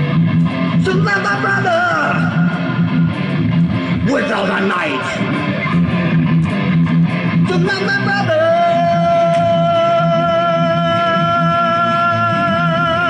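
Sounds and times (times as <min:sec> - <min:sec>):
electric guitar through amplifier: 0:00.0 - 0:13.0
man singing into a microphone: 0:00.7 - 0:03.0, 0:07.3 - 0:13.0.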